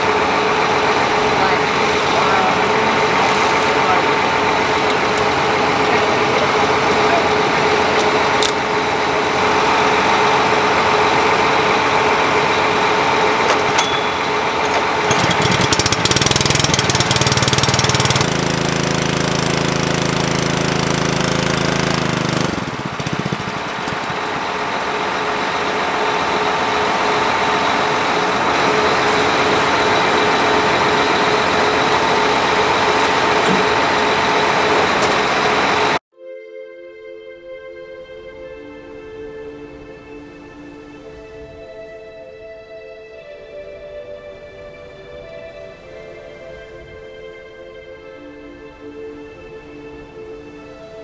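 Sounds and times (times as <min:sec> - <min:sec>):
deeper hum: 0:00.0 - 0:36.0
engine running: 0:00.0 - 0:36.0.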